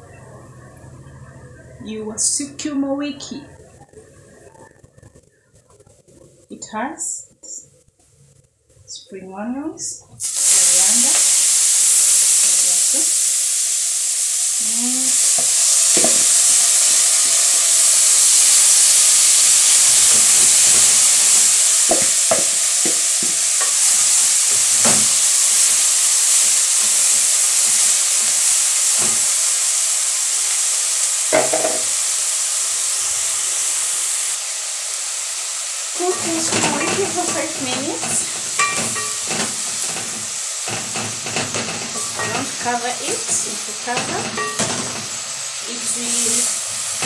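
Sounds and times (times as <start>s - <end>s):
vegetables sizzling in oil: 0.7s - 47.0s
wooden spoon knocking on pot: 21.9s - 23.3s.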